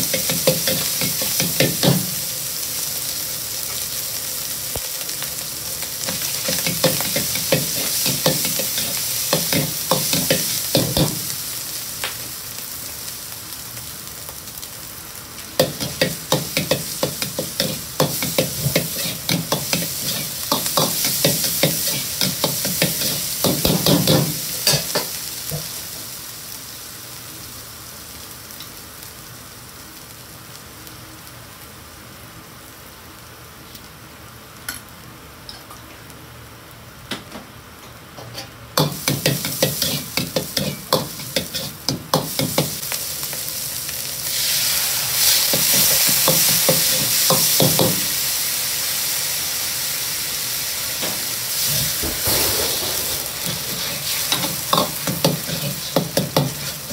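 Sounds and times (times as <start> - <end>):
meat sizzling in a wok: 0.0 - 56.9
metal ladle scraping wok: 51.6 - 56.9.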